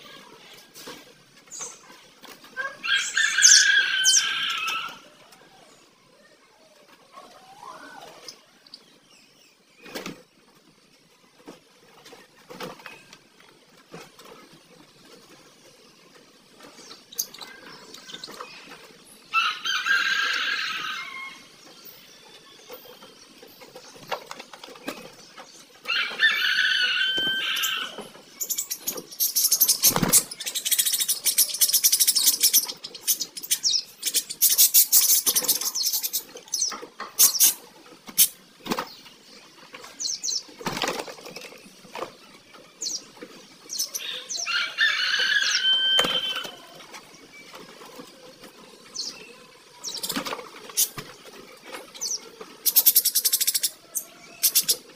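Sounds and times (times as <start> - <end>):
loud bird calls: 1.5 - 6.2, 16.6 - 54.9
budgerigars chattering and chirping: 16.6 - 39.0, 42.8 - 46.6, 52.0 - 54.9
wing flutters: 23.0 - 39.0, 49.8 - 53.8.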